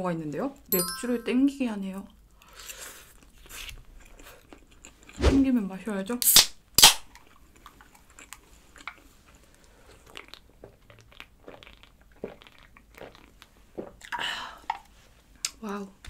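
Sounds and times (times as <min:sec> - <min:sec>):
beer can opening cracks: 0:06.2 - 0:07.0.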